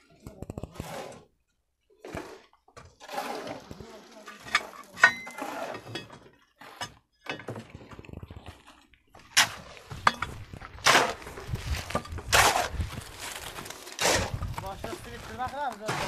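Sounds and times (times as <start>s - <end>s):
hoe scraping through soil: 0.6s - 1.3s, 2.0s - 7.0s, 7.7s - 16.0s
hoe chopping into dry soil: 9.3s - 16.0s.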